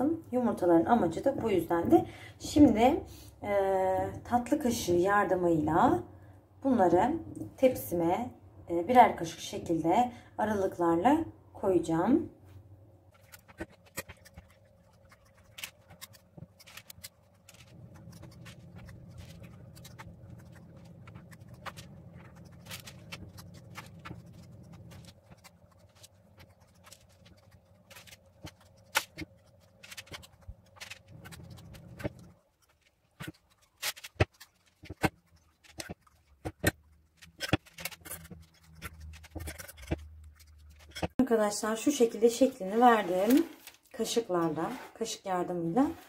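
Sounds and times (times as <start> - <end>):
steady low hum: 11.4 - 34.2.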